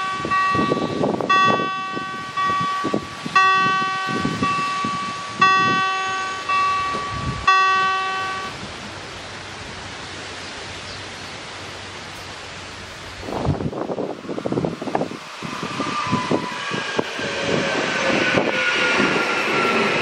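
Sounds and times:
level-crossing warning bell: 0.0s - 8.6s
steady background hiss: 0.0s - 15.5s.

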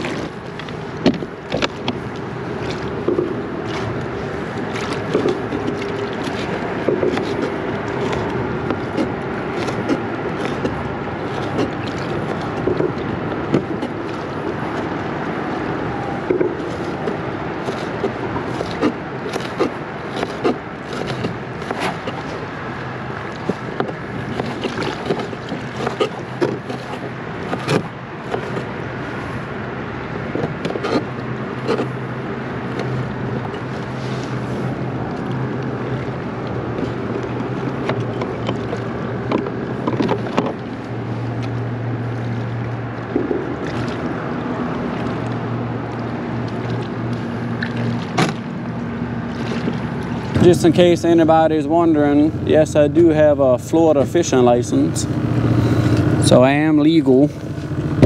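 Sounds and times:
water slapping against kayak hull: 0.0s - 58.0s
wind: 0.0s - 58.0s.

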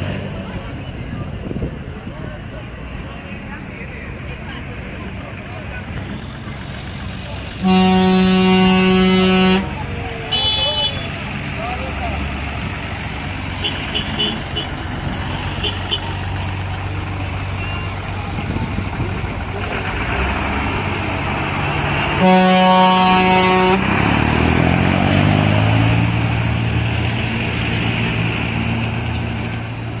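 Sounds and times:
tractor engines running: 0.0s - 30.0s
horn blast: 7.5s - 11.2s, 22.1s - 23.9s.

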